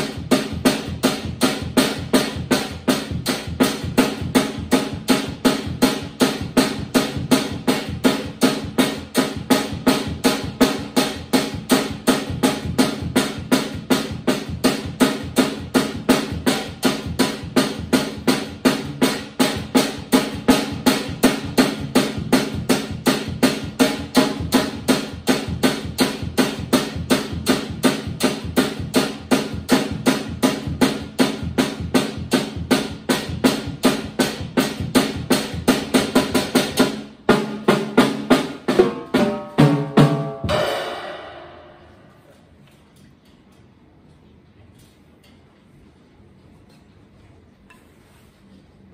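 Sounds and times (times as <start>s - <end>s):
drum kit beat: 0.0s - 42.4s
crash cymbal ringing: 40.4s - 42.3s.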